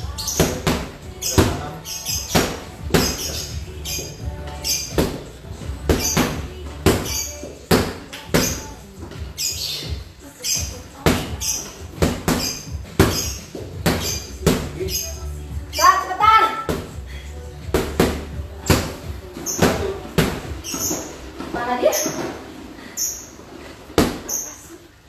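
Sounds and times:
boxing gloves hitting mitts: 0:00.2 - 0:04.0, 0:04.8 - 0:09.2, 0:11.0 - 0:15.0, 0:16.6 - 0:17.0, 0:17.6 - 0:21.2, 0:24.0 - 0:24.3.

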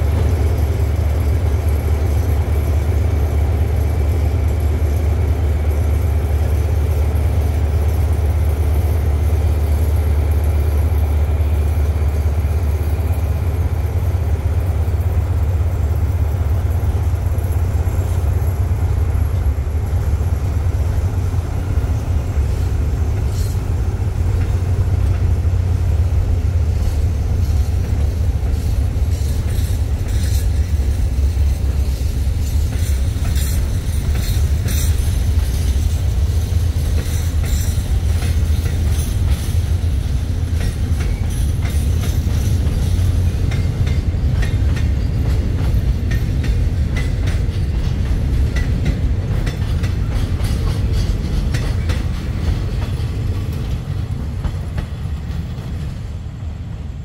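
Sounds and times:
train rumbling past: 0:00.0 - 0:57.0
wheels clicking over rail joints: 0:16.1 - 0:56.0.

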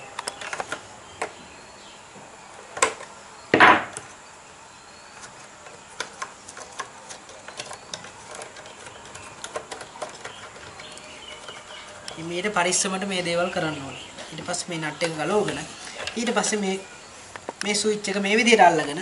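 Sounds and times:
nut clicking and scraping in plastic: 0:05.2 - 0:12.6.

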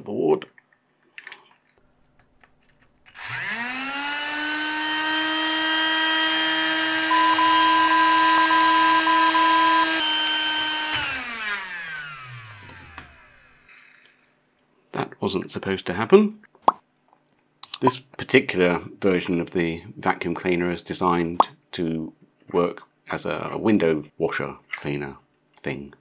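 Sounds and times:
vacuum motor and fan whine: 0:03.1 - 0:14.1.

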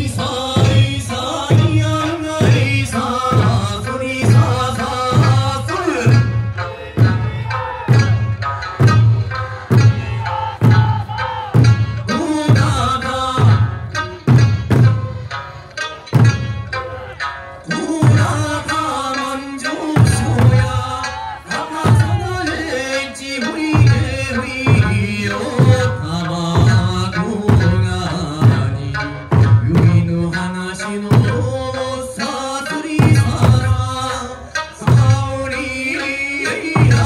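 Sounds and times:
people singing folk song: 0:00.0 - 0:14.2, 0:16.8 - 0:37.0
drums beating in unison: 0:00.0 - 0:37.0.

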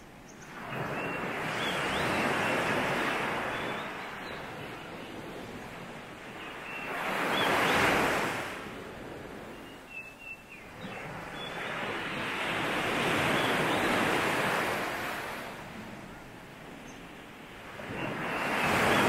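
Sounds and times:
faint bird chirps: 0:00.2 - 0:07.9, 0:09.5 - 0:12.3.

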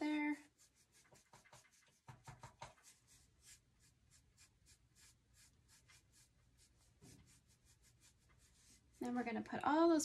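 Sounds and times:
brush dabbing paint: 0:00.0 - 0:09.4.

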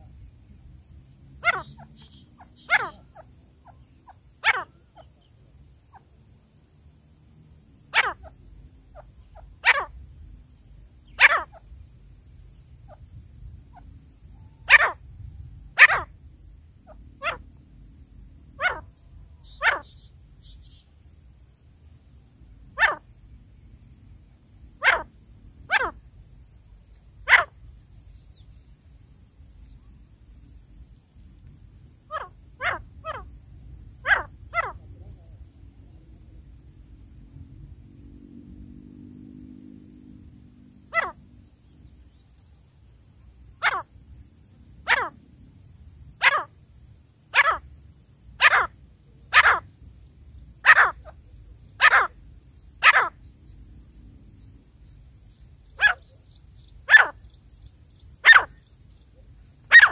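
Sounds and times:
faint high chirps: 0:00.0 - 0:06.0, 0:18.7 - 0:21.2
francolin calls: 0:01.1 - 0:06.2, 0:07.8 - 0:21.4, 0:22.2 - 0:23.2, 0:24.7 - 0:30.1, 0:31.6 - 0:35.4, 0:40.2 - 0:59.9.

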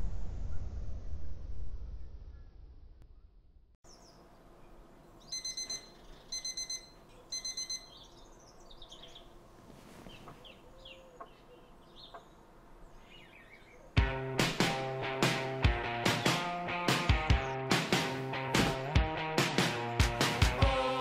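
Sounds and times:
birds chirping: 0:03.8 - 0:14.2, 0:15.8 - 0:17.8
phone alarm beeping: 0:05.3 - 0:08.1.

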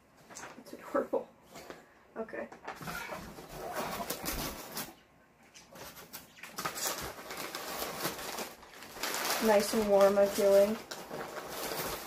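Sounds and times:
packing paper rustling: 0:02.8 - 0:12.0.

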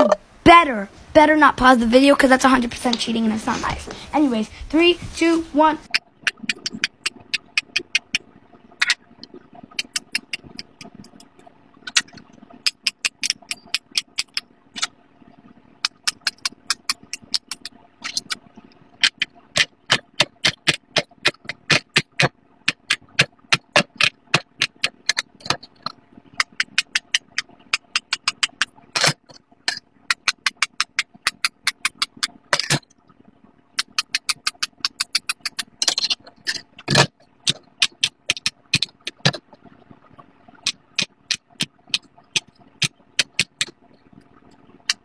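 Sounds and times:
fidget toy bubbles popping: 0:05.8 - 0:45.0.

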